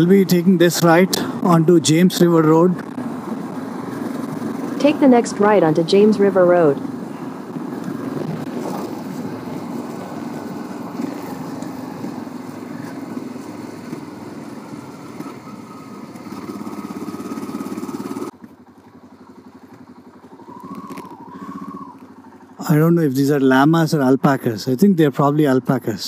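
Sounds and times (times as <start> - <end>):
motorcycle engine running: 0.0 - 23.4
wind noise: 2.6 - 14.9.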